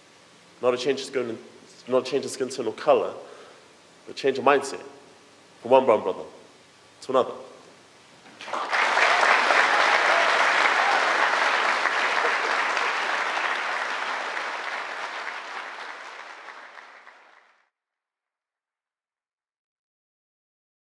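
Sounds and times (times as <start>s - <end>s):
children applauding: 8.4s - 17.6s.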